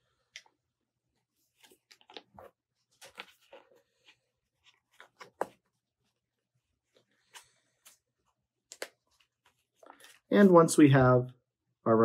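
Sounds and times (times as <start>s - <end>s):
paper rustling and tapping: 4.9s - 5.7s.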